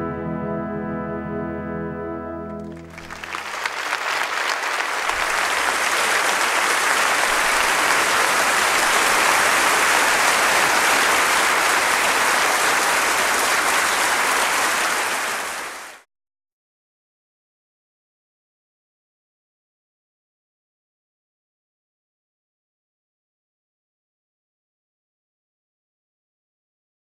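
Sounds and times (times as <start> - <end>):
audience applause: 2.6 - 16.0.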